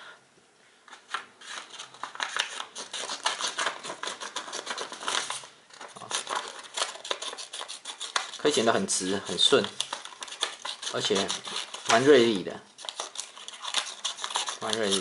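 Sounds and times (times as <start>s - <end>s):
scissors snipping paper: 1.5s - 15.0s.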